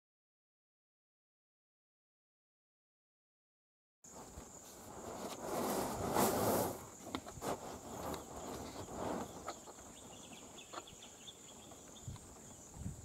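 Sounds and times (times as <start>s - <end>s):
rustling: 4.1s - 12.7s.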